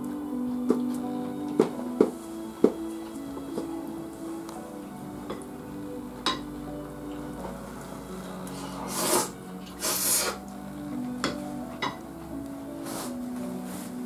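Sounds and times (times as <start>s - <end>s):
soft background music: 0.0s - 14.0s.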